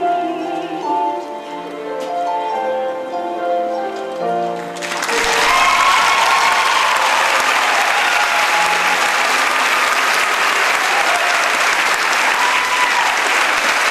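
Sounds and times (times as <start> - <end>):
audience applauding: 4.6 - 13.9.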